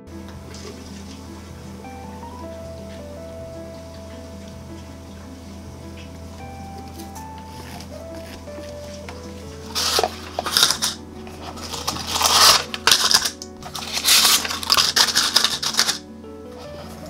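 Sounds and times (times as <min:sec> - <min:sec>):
soft background music: 0:00.0 - 0:17.0
paper liners crinkling: 0:06.8 - 0:17.0.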